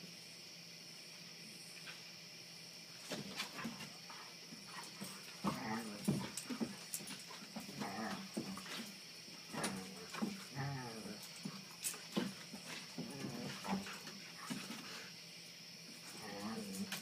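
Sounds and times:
insect chorus: 0.0 - 17.0
dogs play-fighting vocalizations: 3.1 - 15.1.

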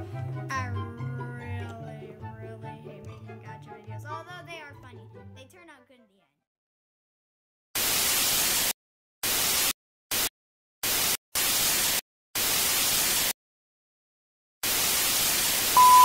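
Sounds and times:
television static hiss: 14.7 - 16.0
high beep tone: 15.8 - 16.0.

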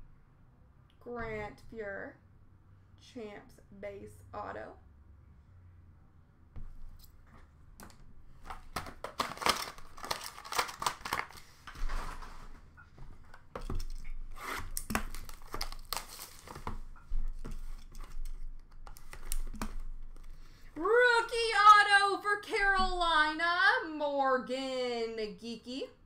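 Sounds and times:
packaging tearing and crumpling: 8.5 - 12.2, 13.8 - 16.8.

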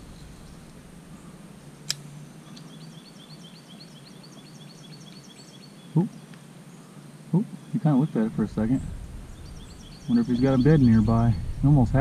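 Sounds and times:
bird chirping: 0.0 - 12.0
sharp click: 1.8 - 2.1.

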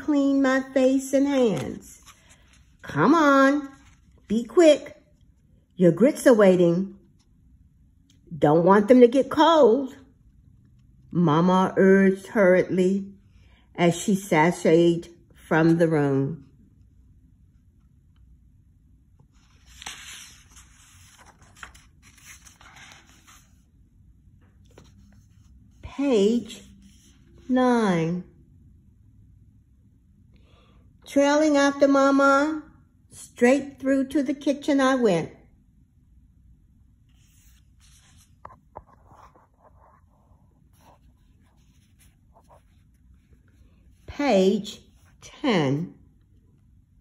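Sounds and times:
book pages turning: 1.2 - 4.6, 19.3 - 23.8, 24.4 - 25.6, 37.0 - 44.1.

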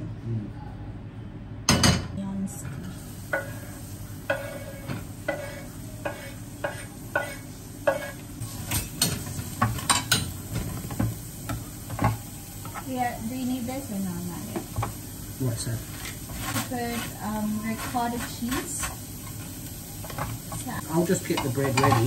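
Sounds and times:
onion sizzling in hot oil: 2.8 - 22.0
spatula stirring and clicking on pan: 3.2 - 13.0, 14.5 - 15.0, 15.8 - 22.0.

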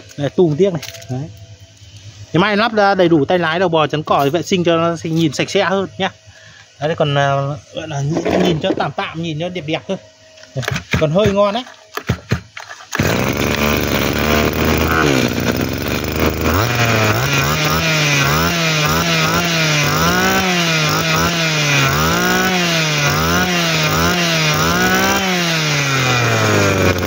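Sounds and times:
brush-cutter engine revving: 12.5 - 27.0.

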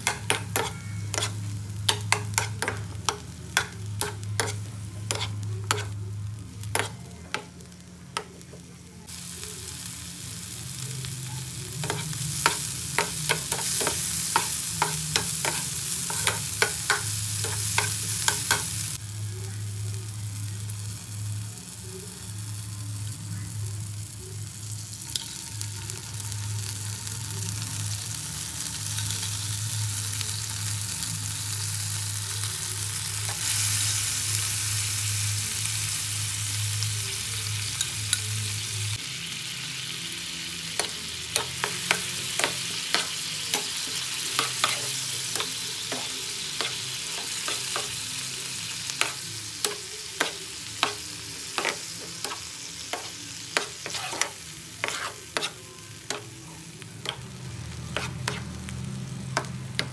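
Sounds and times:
metal spoon scraping pan: 0.0 - 2.8, 4.0 - 5.9, 51.6 - 56.2, 57.9 - 58.6
food sizzling in oil: 0.0 - 59.9.

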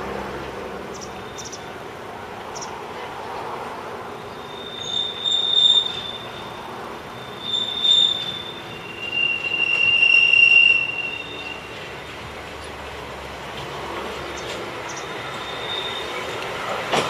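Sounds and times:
train running: 0.0 - 17.0
train wheels squealing: 4.2 - 12.2, 14.4 - 17.0.

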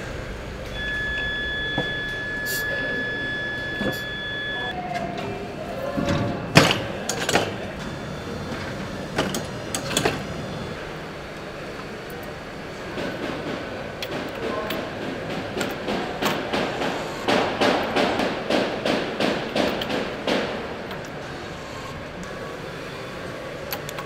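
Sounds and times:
steady high beep: 0.7 - 4.8
metallic clanks and knocks: 13.0 - 20.6.

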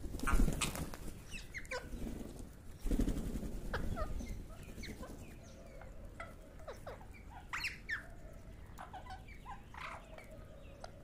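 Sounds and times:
parakeets calling: 8.8 - 10.3.

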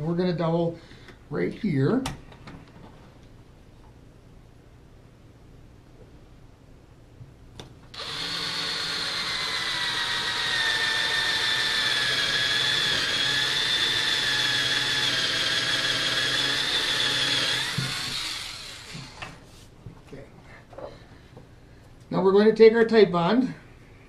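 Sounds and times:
cordless drill boring into wood: 7.9 - 19.4.

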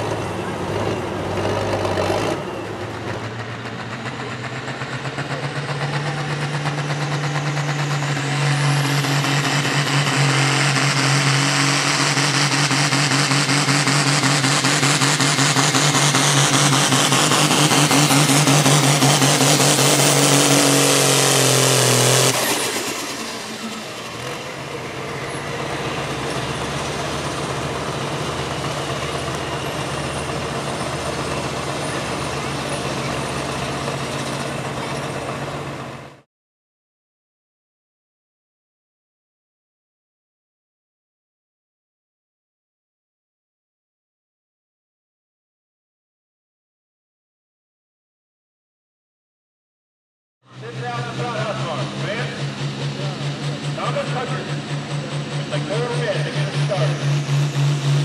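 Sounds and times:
tractor diesel engine at full throttle: 0.0 - 36.3, 50.5 - 58.0.

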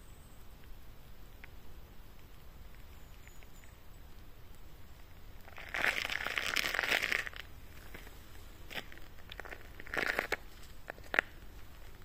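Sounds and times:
crackling rustle: 0.0 - 12.0.

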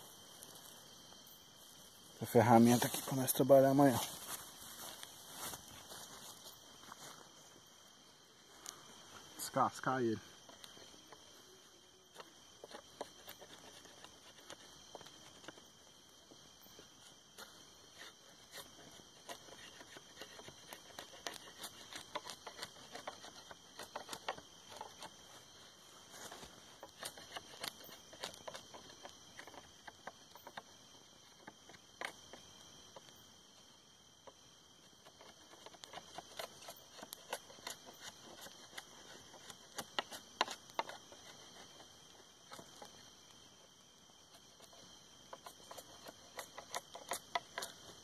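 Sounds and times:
blade shaving bark off wood: 12.1 - 15.6, 17.0 - 25.5, 26.2 - 32.4, 35.0 - 43.1, 44.3 - 48.0.

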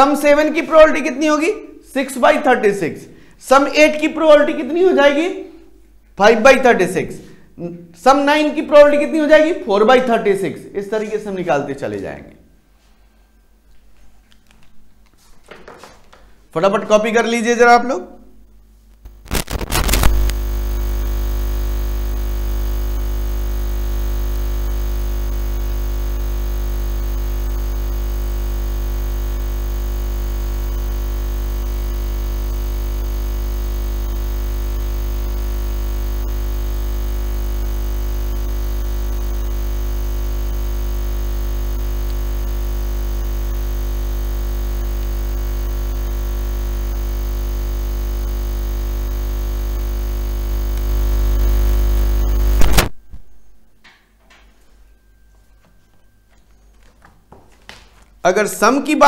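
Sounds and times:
loud steady hum: 19.0 - 53.0.

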